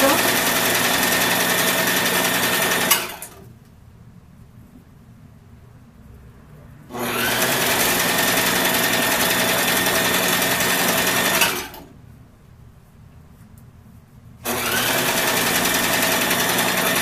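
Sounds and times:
electric sewing machine running: 0:00.0 - 0:03.4, 0:06.9 - 0:11.9, 0:14.4 - 0:17.0.

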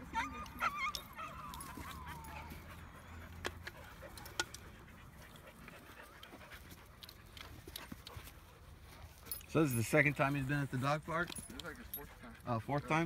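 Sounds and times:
dog whimpering: 0:00.0 - 0:03.3.

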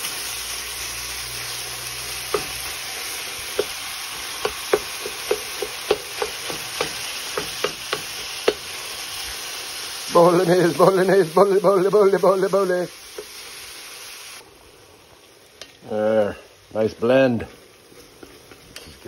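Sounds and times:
meat sizzling in a pot: 0:00.0 - 0:19.0
wooden spatula tapping: 0:03.5 - 0:03.8, 0:04.4 - 0:08.7.

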